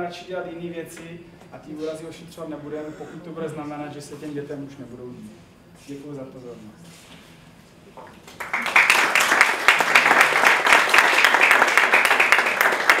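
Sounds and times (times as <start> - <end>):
audience applauding: 8.3 - 13.0.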